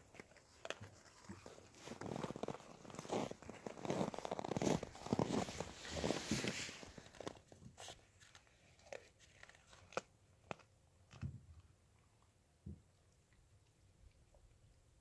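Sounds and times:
dog crunching frozen meat: 0.0s - 11.7s.

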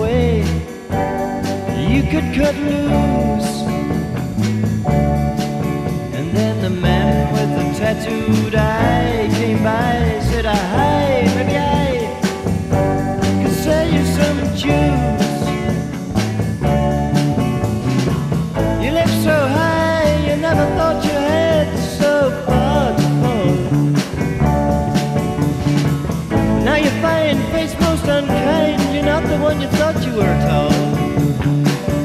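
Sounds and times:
bass: 0.0s - 32.0s
bending lead guitar line: 0.0s - 32.0s
steady drum beat: 0.0s - 32.0s.

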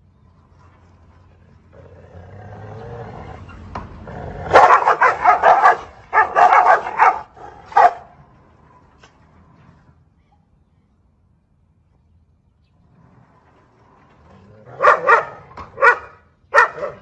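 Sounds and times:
dog growling: 1.7s - 4.8s, 13.0s - 15.5s
dogs barking aggressively: 2.4s - 8.4s, 14.4s - 17.0s.

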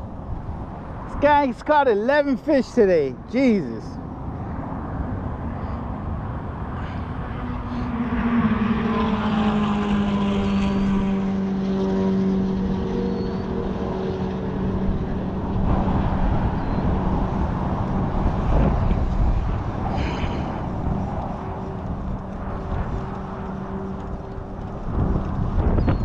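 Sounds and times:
aircraft engine drone: 0.0s - 26.0s.

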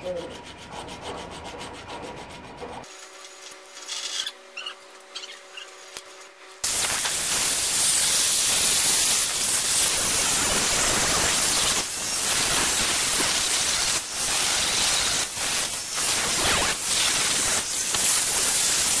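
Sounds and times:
angle grinder grinding steel: 0.0s - 6.0s.

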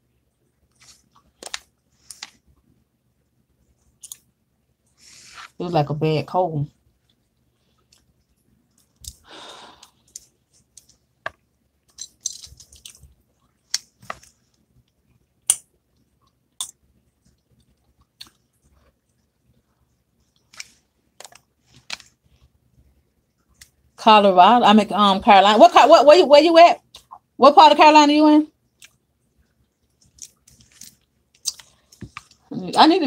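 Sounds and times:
small sharp clicks and crunches: 0.7s - 2.4s, 3.9s - 4.3s, 10.0s - 19.2s, 20.3s - 22.5s, 29.8s - 32.4s
soft rustle: 0.7s - 2.7s, 4.8s - 5.6s.

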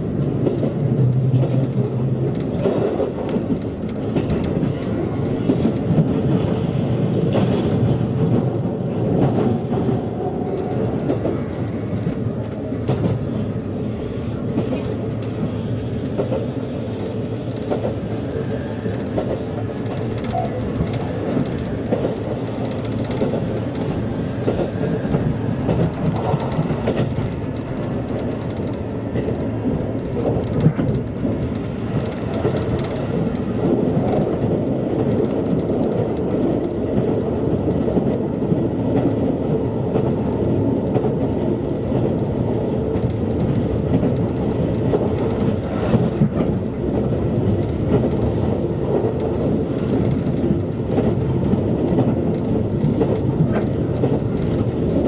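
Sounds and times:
train wheels rumbling on rails: 0.0s - 55.0s.

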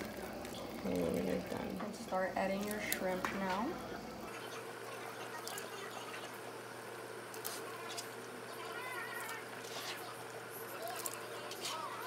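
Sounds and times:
broth bubbling in pot: 0.0s - 12.0s.

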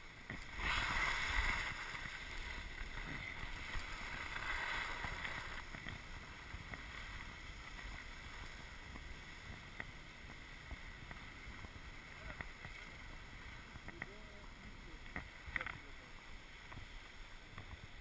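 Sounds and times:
skis hissing over snow: 0.0s - 18.0s
faint ticks: 8.9s - 12.9s, 13.7s - 14.4s, 15.0s - 16.0s.

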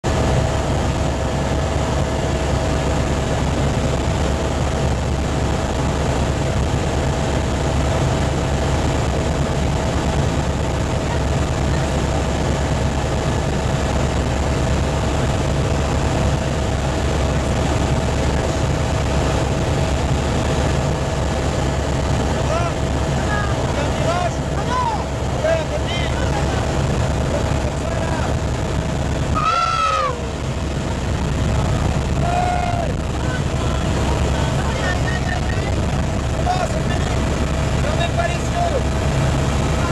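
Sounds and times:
constant whine: 0.0s - 39.9s
helicopter rotor and engine noise: 0.0s - 39.9s.

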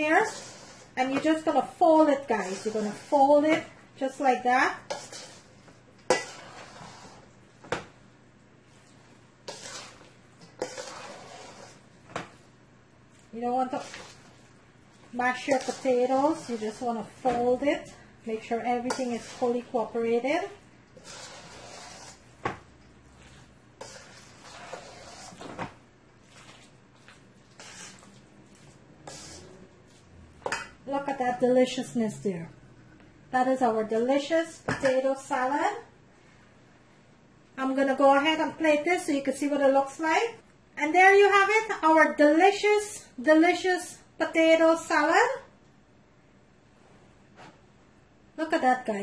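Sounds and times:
spoon scraping and squishing salad: 0.0s - 3.4s, 4.7s - 7.4s, 8.7s - 12.5s, 13.1s - 25.6s, 26.2s - 30.8s.

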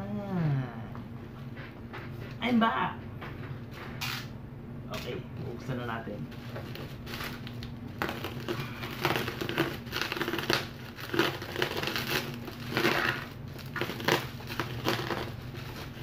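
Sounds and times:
bubble wrap crinkling: 6.3s - 16.0s
box cutter slitting parcel: 8.0s - 16.0s.

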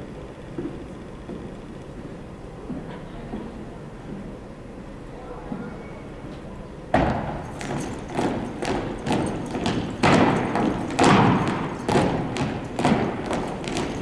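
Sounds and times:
rifles and boots thudding on floor: 7.0s - 14.0s.

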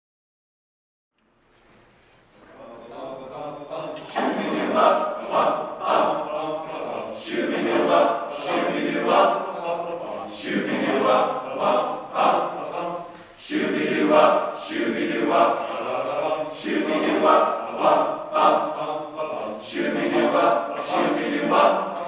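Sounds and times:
choir singing a cappella: 2.5s - 22.0s.

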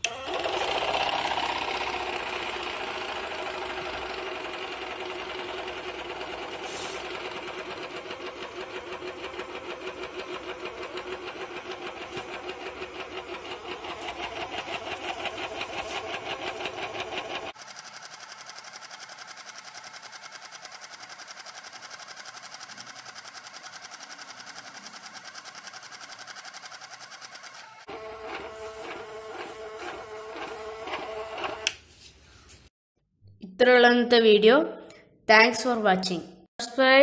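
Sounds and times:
air compressor running: 0.0s - 31.8s.

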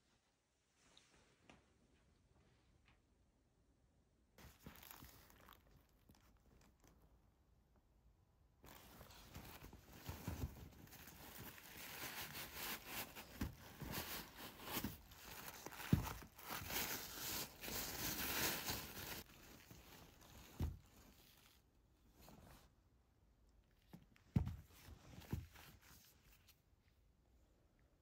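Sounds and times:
fabric bag rustling: 4.4s - 7.0s, 8.6s - 21.6s
sandals thumping on carpet: 24.3s - 25.6s.

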